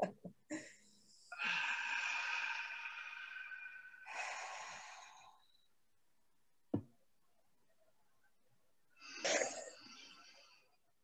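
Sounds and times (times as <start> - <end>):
deep breathing: 0.5 - 5.7.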